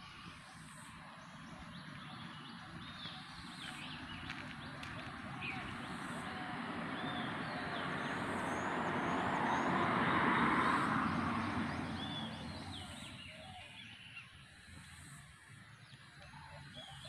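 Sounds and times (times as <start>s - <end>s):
small birds chirping: 0.2s - 9.9s, 10.6s - 14.5s.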